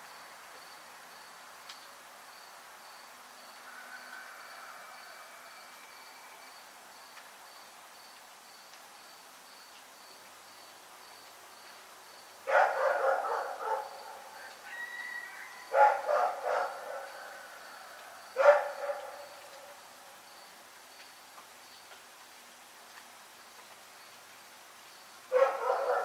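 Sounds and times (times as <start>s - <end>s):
cricket chirping: 0.0s - 22.0s, 23.5s - 26.0s
dog barking: 12.5s - 14.4s, 15.7s - 17.4s, 18.4s - 19.4s, 25.3s - 26.0s.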